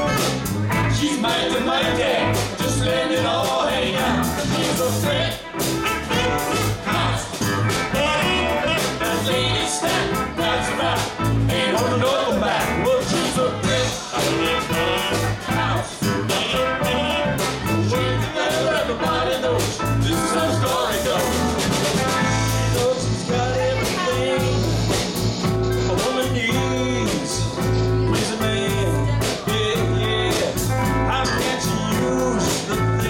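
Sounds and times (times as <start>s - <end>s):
live rock band: 0.0s - 33.0s
woman singing lead: 22.4s - 24.9s.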